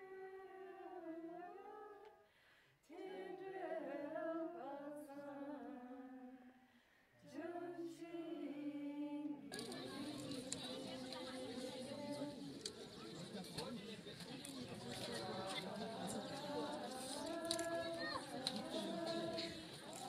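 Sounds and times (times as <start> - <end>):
person chanting: 7.3 - 13.0, 14.4 - 20.0.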